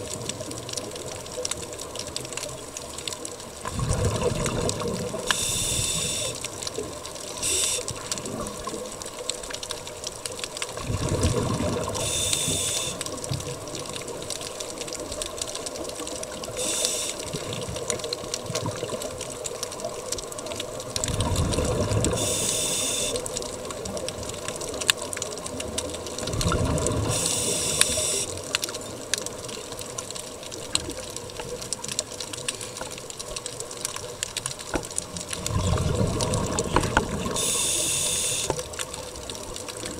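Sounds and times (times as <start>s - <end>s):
exhaled air bubbling underwater: 0.0s - 39.9s
water wash: 0.0s - 39.9s
regulator inhalation hiss: 5.3s - 6.4s, 7.4s - 8.0s, 12.0s - 13.0s, 16.6s - 17.3s, 22.2s - 23.2s, 27.1s - 28.3s, 37.4s - 38.6s.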